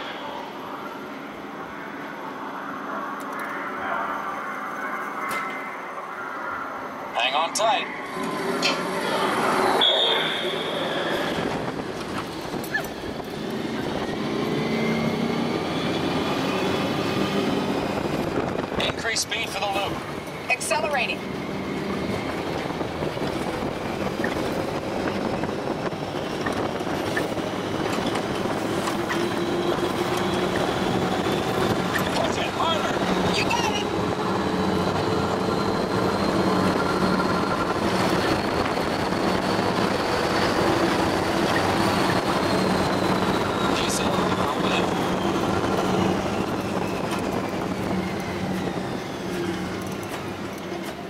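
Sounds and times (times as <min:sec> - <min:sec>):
high whine falling in pitch: 0:00.0 - 0:11.4
faint rising tone: 0:00.0 - 0:11.6
road noise: 0:00.0 - 0:51.0
rushing wind: 0:00.0 - 0:51.0
tyres rumbling on track: 0:00.0 - 0:51.0.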